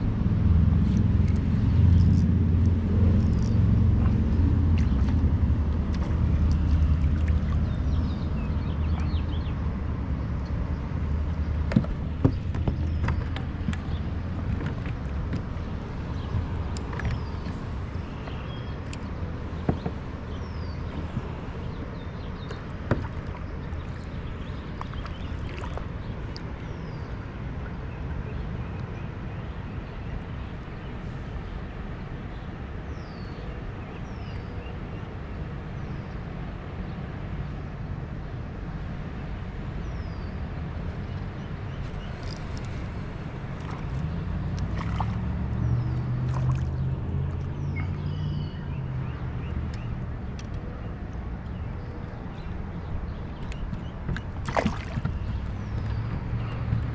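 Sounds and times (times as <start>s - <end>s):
steady low rumble: 0.0s - 26.8s, 41.8s - 47.8s
water gurgling against a hull: 1.2s - 9.8s, 11.2s - 27.3s, 41.8s - 48.2s, 53.1s - 56.9s
gear knocking against a kayak: 11.4s - 26.5s, 52.4s - 56.9s
small birds chirping: 11.7s - 29.6s, 41.1s - 56.9s.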